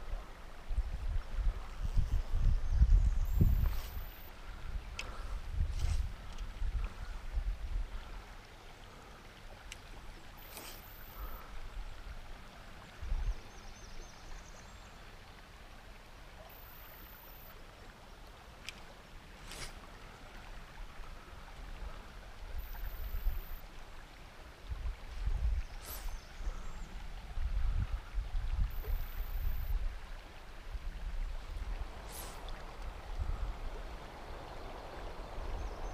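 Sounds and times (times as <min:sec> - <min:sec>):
faint clicks: 0:04.9 - 0:05.2, 0:09.6 - 0:11.1.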